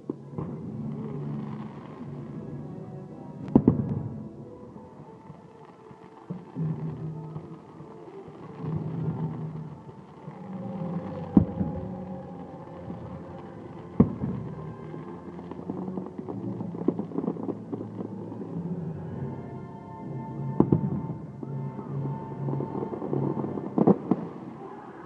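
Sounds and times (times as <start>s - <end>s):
firework crackles: 0.0s - 25.0s
music over loudspeakers: 0.2s - 25.0s
firework bangs: 3.4s - 4.3s, 5.2s - 18.7s, 20.1s - 25.0s.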